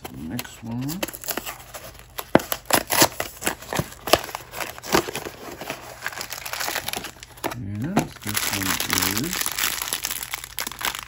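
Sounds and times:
plastic wrapper crinkling: 0.0 - 11.0.

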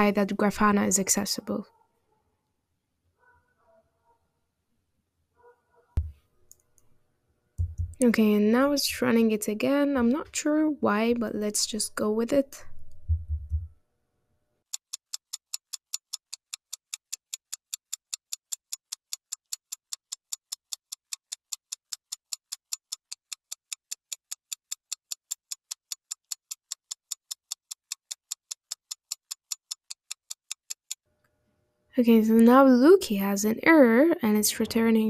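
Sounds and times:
clock ticking: 14.7 - 31.0.

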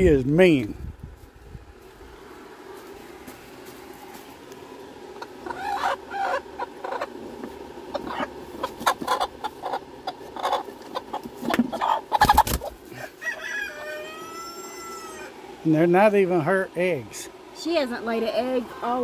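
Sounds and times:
hen clucking and squawking: 4.8 - 15.6.

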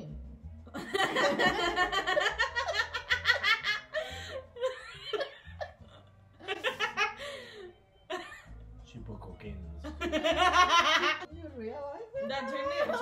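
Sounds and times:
woman laughing: 0.8 - 7.4.

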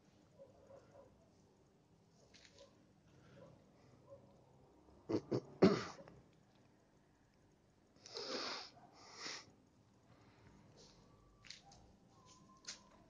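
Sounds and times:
cat hissing: 8.1 - 9.5.

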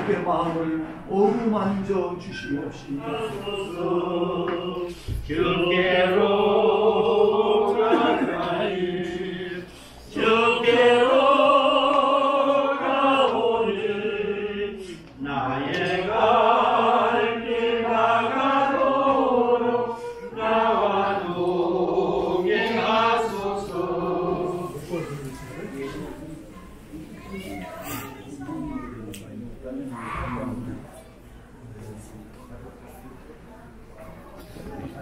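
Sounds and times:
congregation singing a hymn: 0.0 - 27.0.

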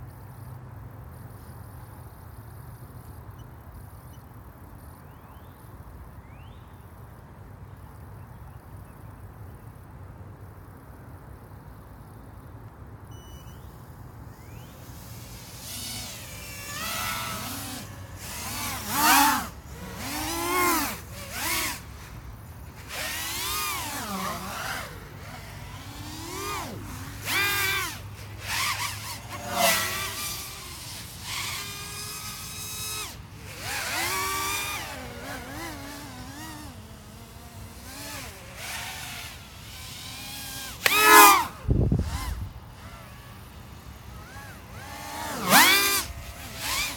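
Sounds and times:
faint background noise: 0.0 - 46.9
quadcopter motors whining: 13.1 - 46.9.

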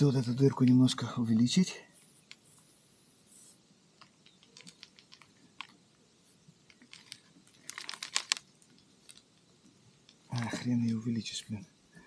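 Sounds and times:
reamer clicking and scraping in tyre: 3.4 - 11.4.

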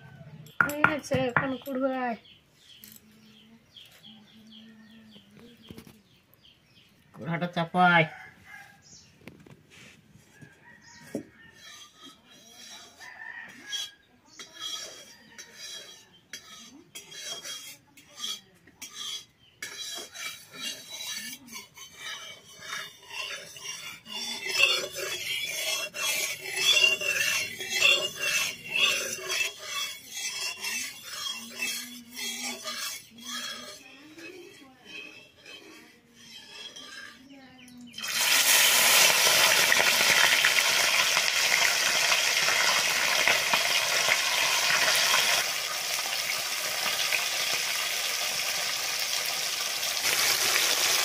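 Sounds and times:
rooster crowing: 7.9 - 8.8, 13.0 - 14.0
metal spatula scraping a wok: 9.7 - 51.0.

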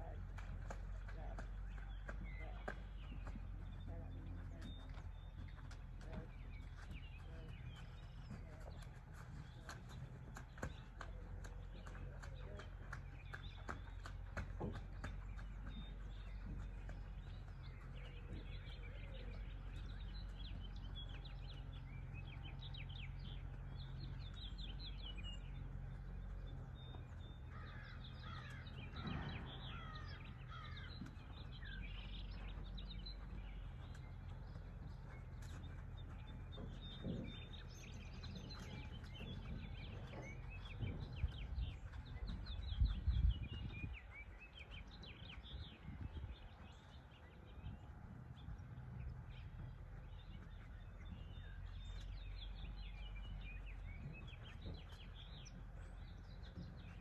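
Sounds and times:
birds chirping and calling: 0.0 - 57.0
low rumble: 16.1 - 44.9.

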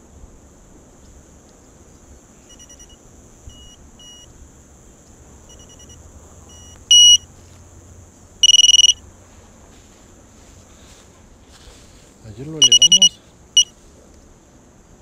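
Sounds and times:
rapidly pulsing beep: 2.5 - 4.3, 6.6 - 7.2, 8.4 - 9.0, 12.6 - 13.7
high-pitched electronic beeps: 6.6 - 7.2, 8.4 - 9.0, 12.6 - 13.7.

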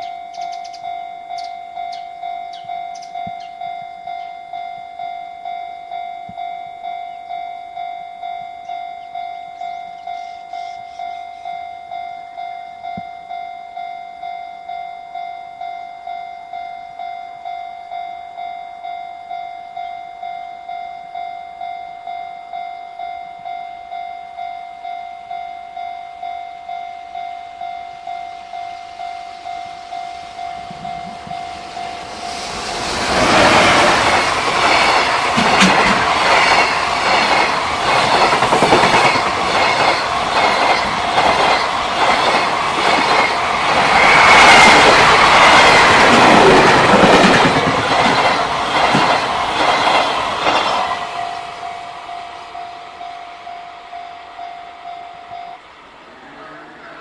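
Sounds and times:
level crossing warning bell: 0.0 - 57.0
train wheels clattering over rails: 30.6 - 51.3.

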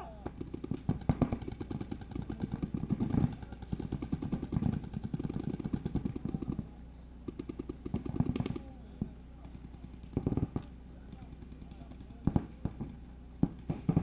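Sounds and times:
paintball markers firing: 0.0 - 14.0.

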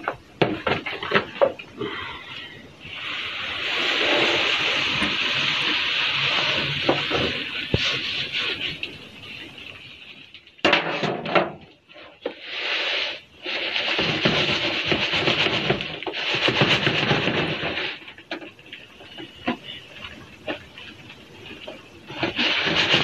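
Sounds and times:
bedding rustling in shaken sieve: 2.9 - 9.4, 12.4 - 18.2, 21.5 - 23.0.

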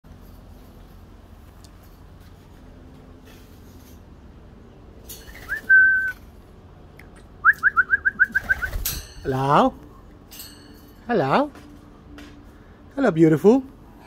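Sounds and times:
person whistling: 5.5 - 6.2, 7.4 - 8.7.

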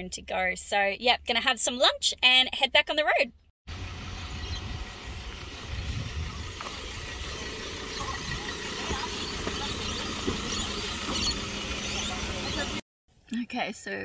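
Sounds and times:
outdoor street noise: 0.0 - 13.2
car engine running: 3.7 - 12.8.

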